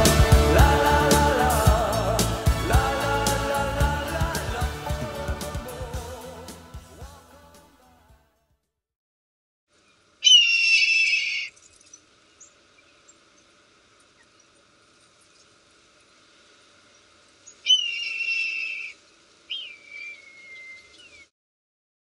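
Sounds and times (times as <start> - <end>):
bird of prey screaming: 10.2 - 11.6, 17.6 - 21.3.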